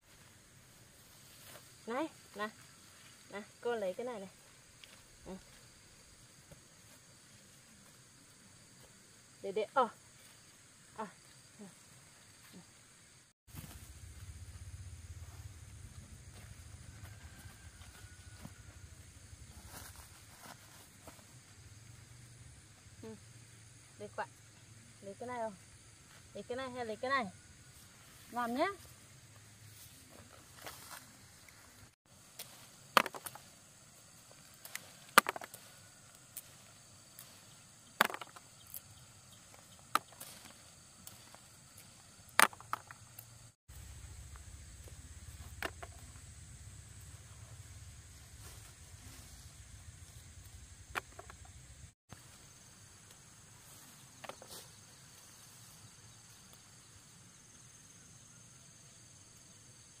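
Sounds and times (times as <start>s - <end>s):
insects chirring: 0.0s - 60.0s
soft rustle: 15.2s - 21.6s.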